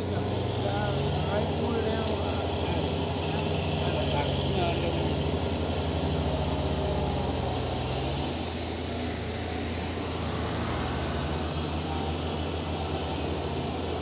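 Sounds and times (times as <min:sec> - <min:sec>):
tractor engine running: 0:00.0 - 0:14.0.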